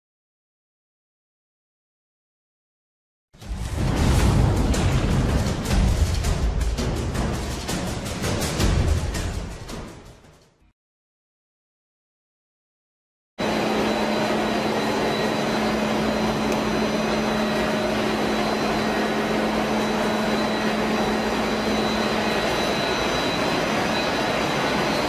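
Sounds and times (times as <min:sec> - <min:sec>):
faint high whine: 0:13.4 - 0:25.0
rice mill machinery whirring: 0:13.4 - 0:25.0.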